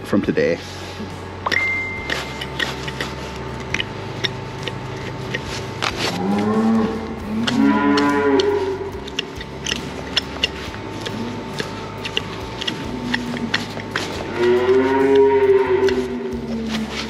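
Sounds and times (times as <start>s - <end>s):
cow mooing: 5.4s - 17.0s.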